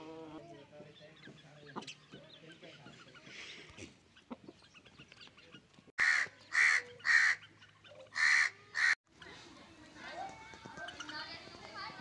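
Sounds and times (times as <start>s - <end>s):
chicken calling loudly: 6.0s - 7.4s, 8.0s - 9.0s.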